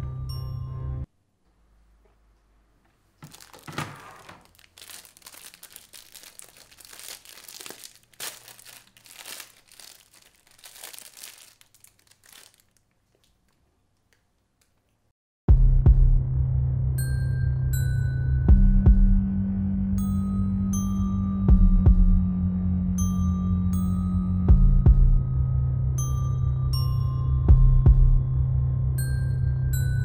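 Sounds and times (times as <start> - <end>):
plastic wrapper crinkling: 3.0 - 14.9.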